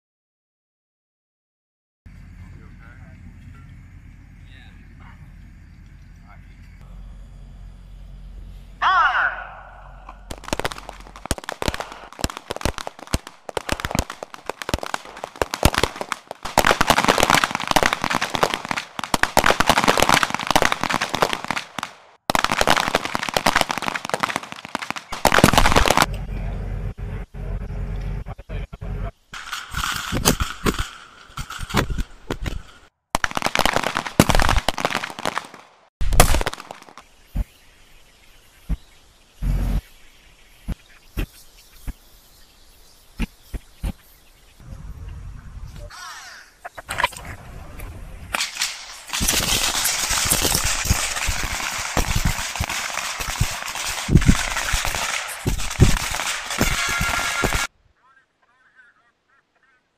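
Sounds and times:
pistol gunshots: 9.2 - 26.1, 48.4 - 57.7.

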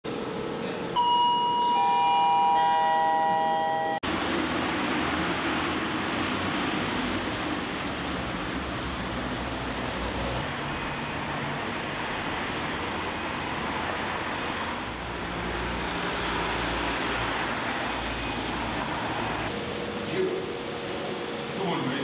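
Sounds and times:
car traffic noise: 0.0 - 21.6
low traffic rumble: 2.0 - 22.0.

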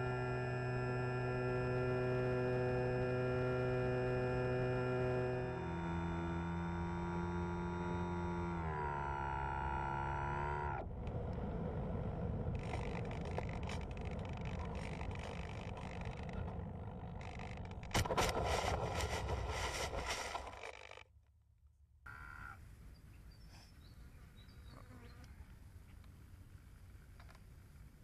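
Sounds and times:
electric motor and propeller whine: 0.0 - 21.0
plane scraping along turf: 12.6 - 20.9.

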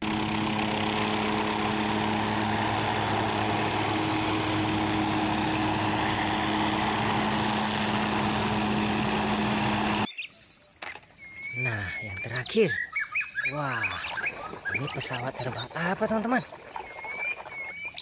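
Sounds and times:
helicopter hovering: 0.0 - 10.1.

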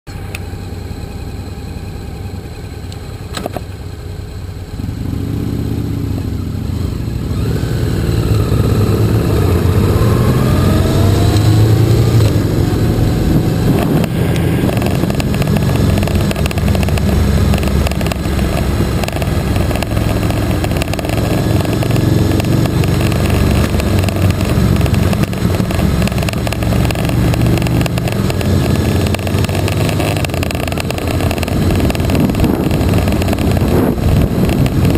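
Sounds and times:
motorcycle engine revving: 0.1 - 34.9
wind noise: 7.3 - 34.9.

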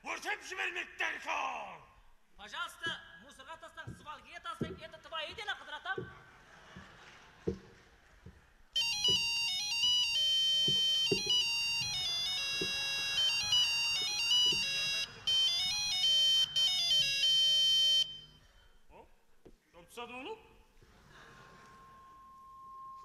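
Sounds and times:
soft thumps: 3.8 - 8.4, 9.0 - 9.6, 10.6 - 14.7
mobile phone ringtone melody: 8.8 - 18.4.

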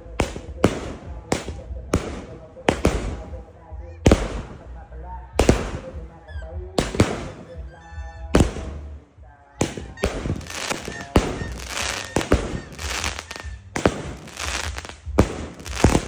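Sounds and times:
firework bangs: 0.0 - 4.8, 5.4 - 7.7, 8.3 - 9.0, 9.6 - 16.0
firework hissing and crackling: 10.0 - 16.0.

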